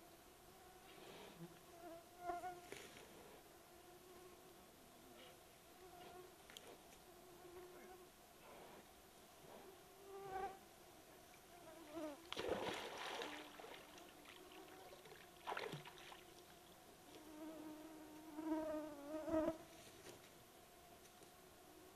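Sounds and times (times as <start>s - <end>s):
bears splashing in water: 12.3s - 16.6s.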